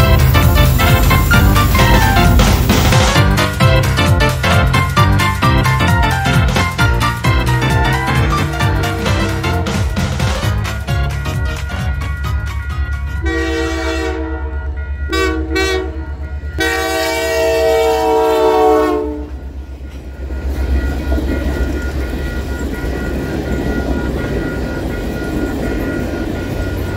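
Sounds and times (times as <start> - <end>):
locomotive horn: 0.0 - 12.1, 13.2 - 19.4
crossing bell ringing: 0.0 - 26.9
train cars rumbling and clattering: 0.0 - 26.9.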